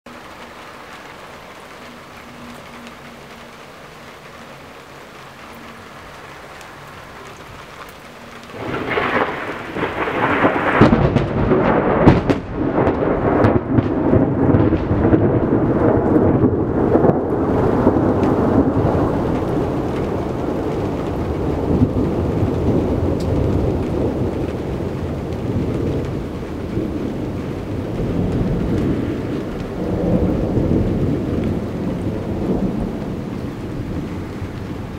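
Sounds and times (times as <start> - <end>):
steady rain: 0.1 - 34.9
thunderclap crash and rumble: 8.5 - 34.9.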